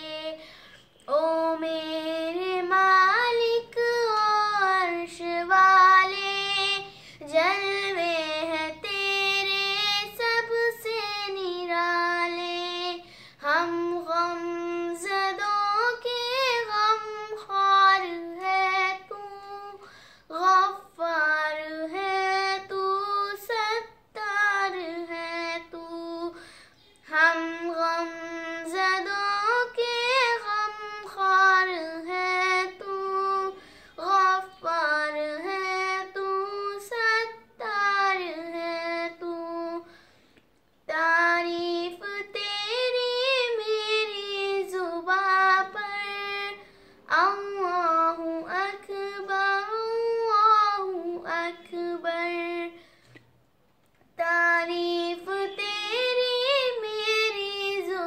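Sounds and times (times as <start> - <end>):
girl singing unaccompanied: 0.0 - 40.2, 40.8 - 53.0, 54.0 - 58.0.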